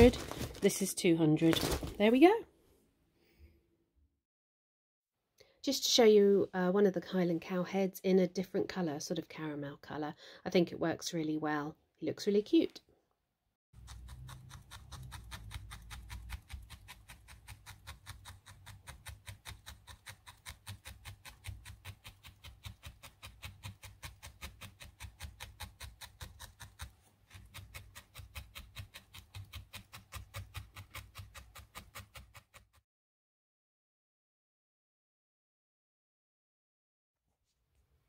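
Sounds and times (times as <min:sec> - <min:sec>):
felting needle stabbing wool: 0:13.8 - 0:32.8.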